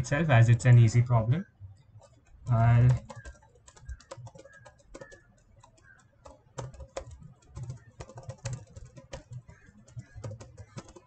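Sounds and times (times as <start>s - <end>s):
keyboard typing clicks: 1.8s - 11.0s.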